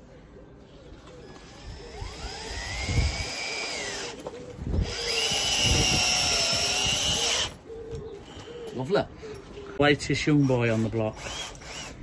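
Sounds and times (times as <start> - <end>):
cordless drill motor whining: 1.2 - 7.6, 10.8 - 12.0.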